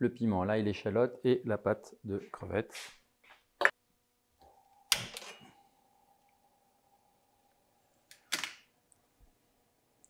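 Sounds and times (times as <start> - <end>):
faint steady tone: 4.4 - 8.2.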